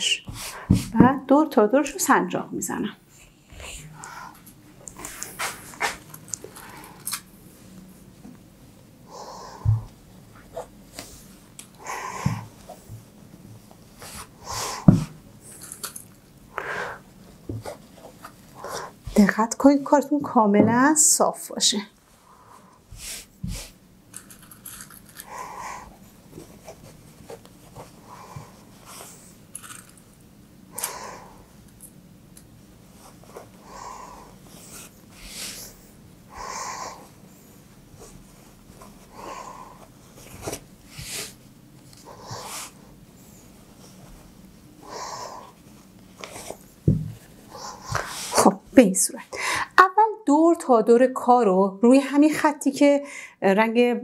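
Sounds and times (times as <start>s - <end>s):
dull thump: 46.9s - 47.2s.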